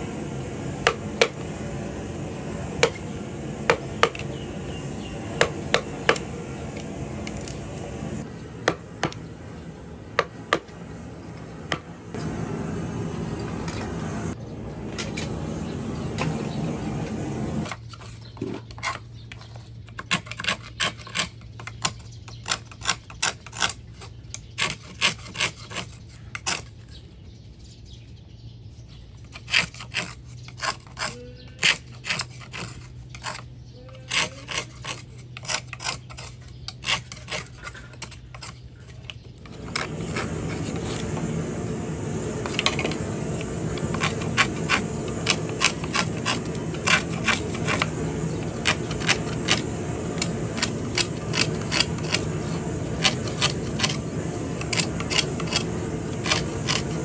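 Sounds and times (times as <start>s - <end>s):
steady background noise: 0.0s - 19.0s, 29.3s - 57.0s
knife cutting bamboo: 5.4s - 7.9s, 17.6s - 26.8s, 29.2s - 41.2s, 42.4s - 57.0s.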